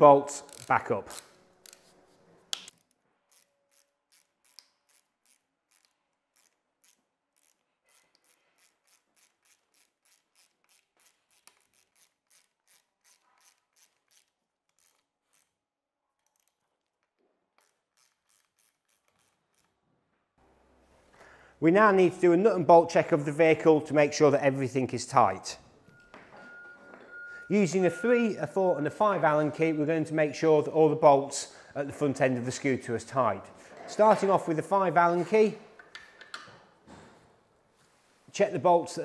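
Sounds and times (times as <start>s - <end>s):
ratchet driver clicking: 0.4s - 1.8s, 3.3s - 15.5s.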